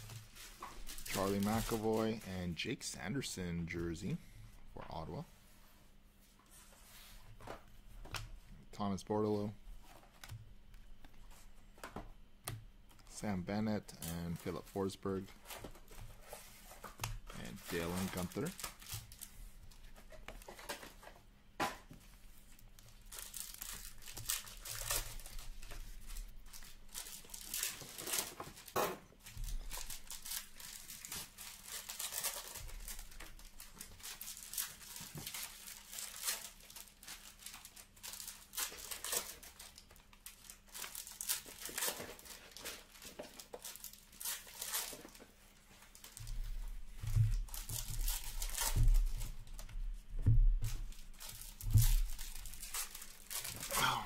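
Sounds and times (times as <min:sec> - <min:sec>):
cards rustling: 0:00.0 - 0:02.3, 0:12.9 - 0:21.2, 0:22.8 - 0:49.7, 0:50.7 - 0:54.0
wrappers crinkling and tearing: 0:00.0 - 0:02.6, 0:13.2 - 0:21.0, 0:22.5 - 0:49.7, 0:50.6 - 0:54.0.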